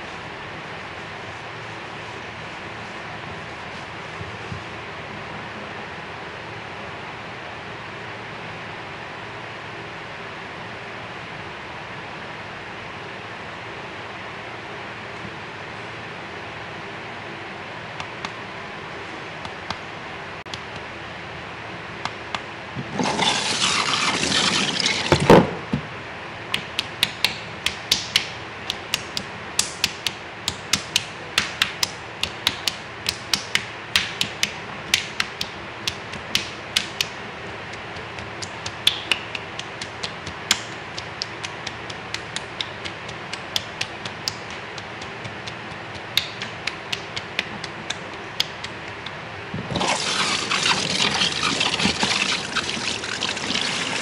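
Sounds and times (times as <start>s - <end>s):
shower sprayer water running: 23.0s - 25.3s, 49.7s - 54.0s.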